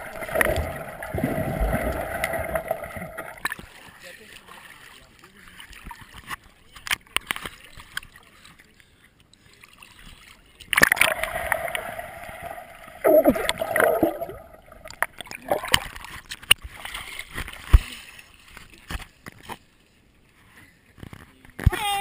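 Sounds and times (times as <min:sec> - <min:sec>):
swimmer plunging into water: 0:00.0 - 0:03.6, 0:10.8 - 0:16.0
underwater bubbles rushing: 0:00.0 - 0:03.7, 0:10.7 - 0:16.1
splashy clicks: 0:10.7 - 0:16.7.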